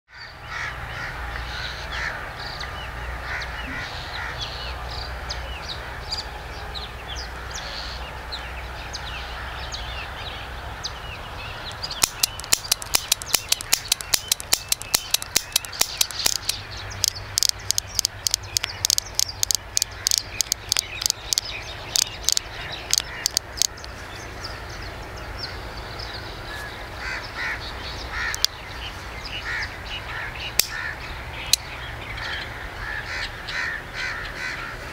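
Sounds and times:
birds calling: 0.1s - 34.9s
rapid sharp clicks: 11.7s - 23.9s.

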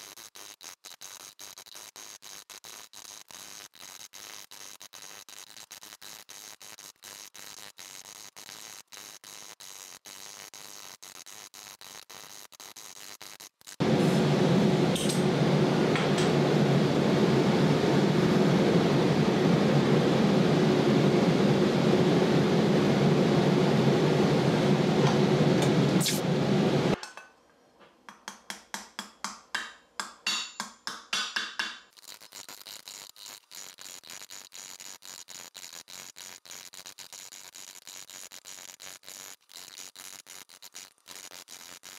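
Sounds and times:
torch flame hissing: 12.6s - 27.0s.

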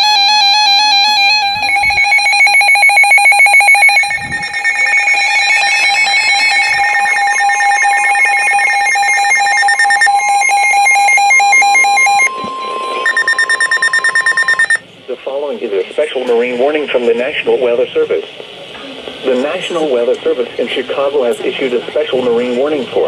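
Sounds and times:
rapid electronic alarm beeping: 0.0s - 14.9s
steady warning alarm tone: 0.0s - 18.3s.

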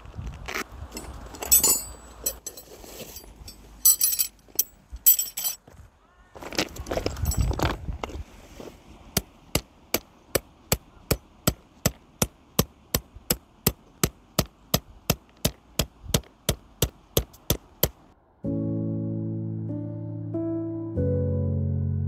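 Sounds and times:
hammer striking tent peg: 9.1s - 18.0s.

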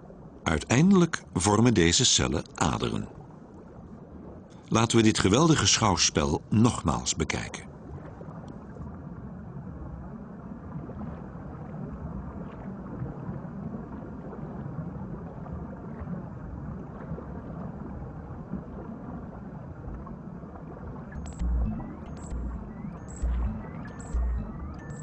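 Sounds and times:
low rumbling whoosh: 21.2s - 25.0s.

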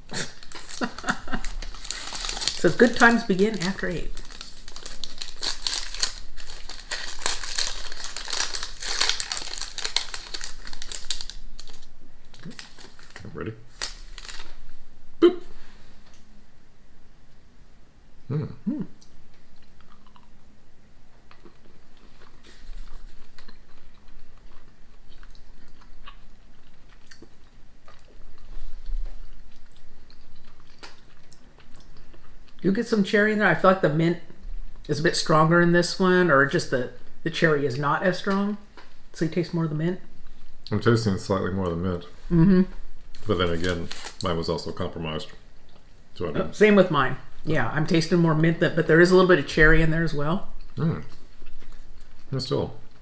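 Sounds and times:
people chewing: 0.1s - 13.2s, 19.0s - 20.4s, 21.1s - 32.6s, 50.5s - 53.0s
paper sleeves crinkling: 0.3s - 14.6s, 43.2s - 44.5s.

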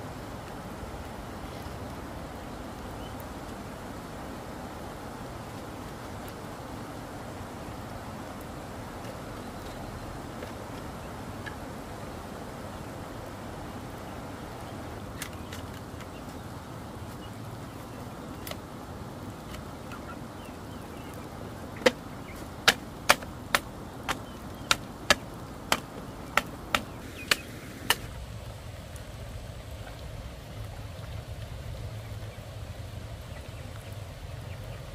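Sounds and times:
bamboo knocking on bamboo: 22.6s - 28.1s.

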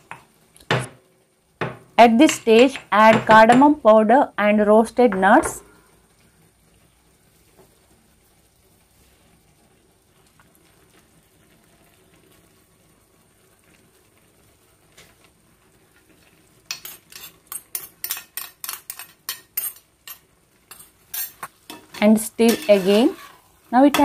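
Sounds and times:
spoon clinking and scraping metal: 16.7s - 23.4s.

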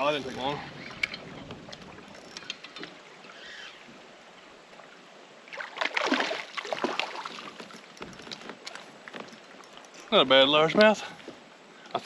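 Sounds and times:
soft water noise around hull: 0.0s - 12.0s
fish splashing at the surface: 5.5s - 7.6s.

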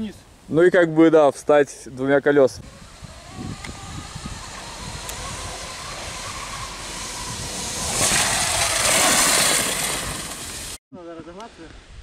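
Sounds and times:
tyres and wind rushing: 0.2s - 10.8s
electric motor whine: 2.6s - 10.8s.

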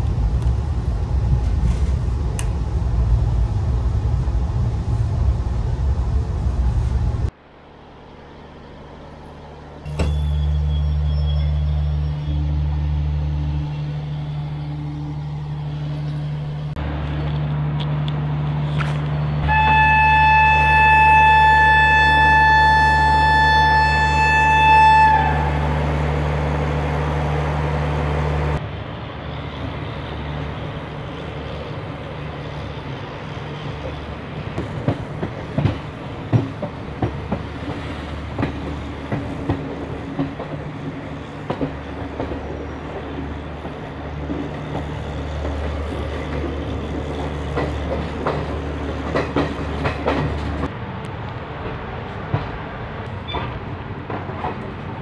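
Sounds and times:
train horn: 19.4s - 25.8s
train wheels clattering over rails: 34.6s - 50.7s.

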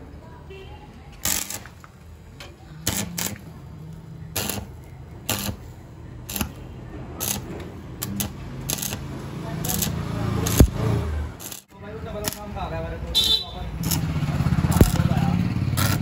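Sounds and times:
arc welding hissing bursts: 1.2s - 1.8s, 2.8s - 3.5s, 4.3s - 6.6s, 7.2s - 12.6s.

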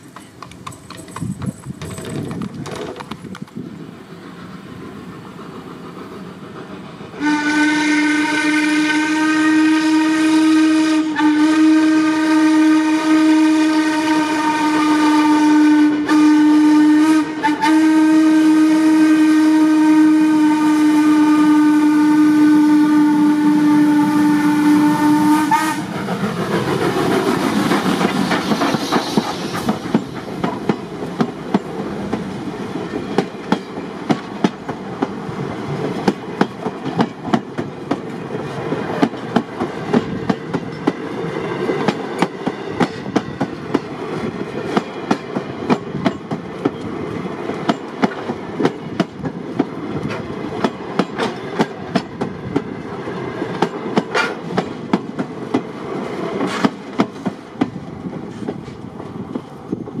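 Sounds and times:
train wheels clicking over joints: 0.0s - 7.3s, 25.2s - 60.0s
train rumble: 0.0s - 60.0s.

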